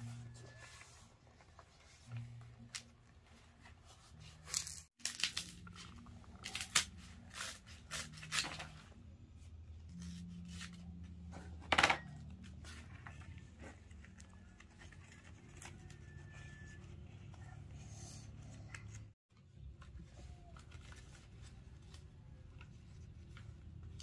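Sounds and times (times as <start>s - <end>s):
rustling and tearing: 3.8s - 8.8s.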